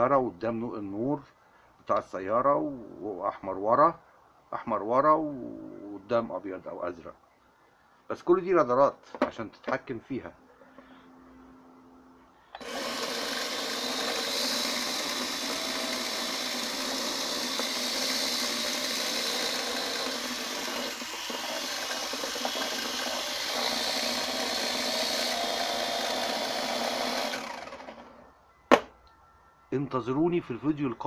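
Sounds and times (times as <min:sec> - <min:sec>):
toy drone motors whining: 0:12.6 - 0:28.2.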